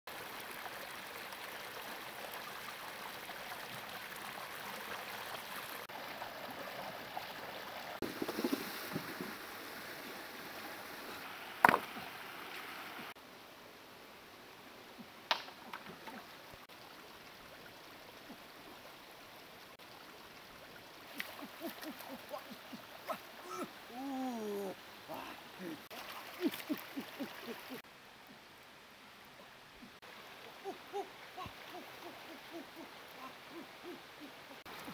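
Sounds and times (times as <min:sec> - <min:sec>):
stream flowing over stones: 0:00.1 - 0:34.9
water splashing: 0:19.7 - 0:27.9.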